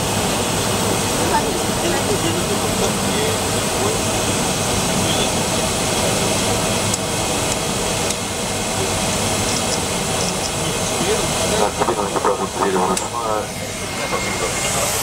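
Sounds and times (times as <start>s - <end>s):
jet engines idling: 0.0s - 15.0s.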